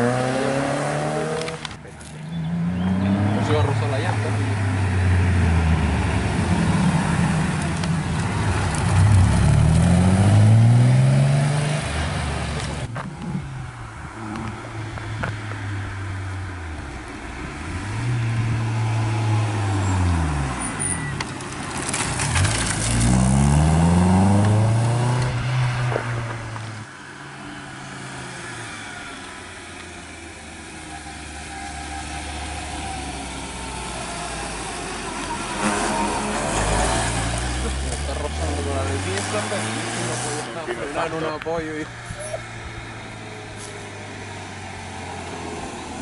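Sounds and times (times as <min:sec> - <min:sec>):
car engine revving past: 0:00.0 - 0:01.7, 0:02.4 - 0:12.8, 0:21.9 - 0:26.8, 0:32.0 - 0:40.6
second car engine approaching: 0:00.0 - 0:46.0.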